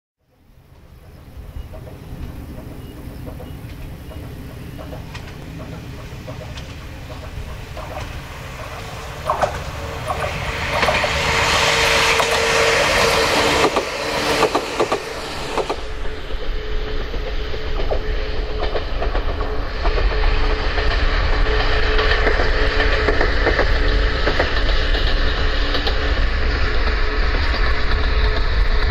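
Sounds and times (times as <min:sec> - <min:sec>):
electric train passing: 0:00.2 - 0:28.9
steady whine: 0:00.4 - 0:28.9
wheels clattering over rail joints: 0:00.6 - 0:15.9.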